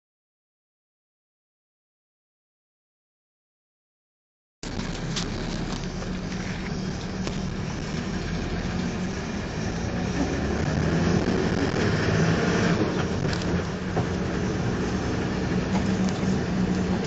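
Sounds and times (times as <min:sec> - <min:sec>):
road noise: 0:04.6 - 0:17.0
vehicle engine humming: 0:04.6 - 0:17.0.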